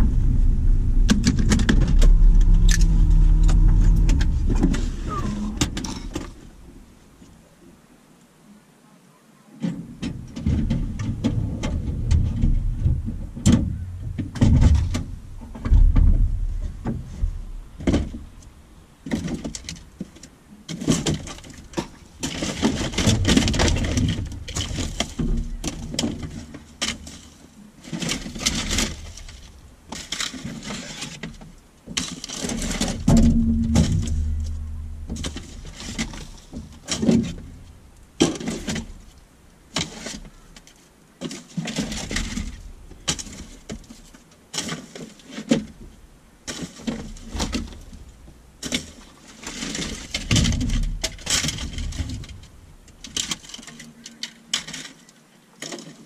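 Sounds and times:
scraping and rustling: 0:00.0 - 0:06.9, 0:09.6 - 0:45.9
rubbish knocking and clattering: 0:10.0 - 0:18.4, 0:19.1 - 0:27.0, 0:31.4 - 0:39.1, 0:49.7 - 0:53.5.

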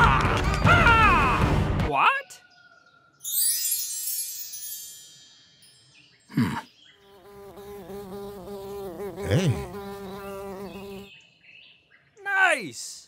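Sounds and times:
insect buzzing: 0:07.0 - 0:11.2.

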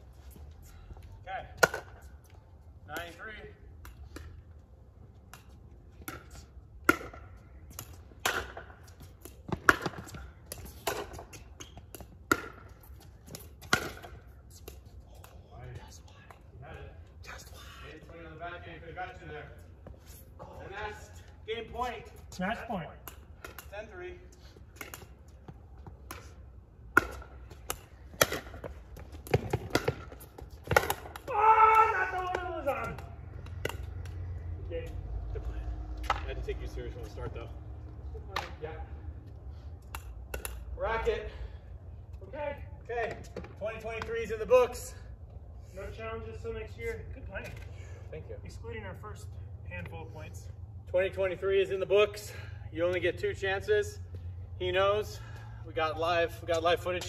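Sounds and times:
paddles hitting a ball: 0:01.5 - 0:02.1, 0:05.3 - 0:15.4, 0:24.7 - 0:34.4, 0:38.3 - 0:38.6
ball bouncing on court: 0:05.3 - 0:14.8, 0:26.9 - 0:34.2.

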